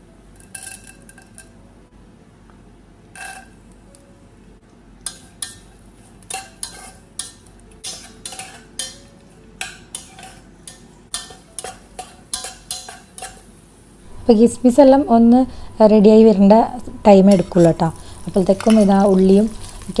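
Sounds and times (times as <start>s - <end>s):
metal spoon scraping pot: 6.3s - 7.0s, 17.3s - 20.0s.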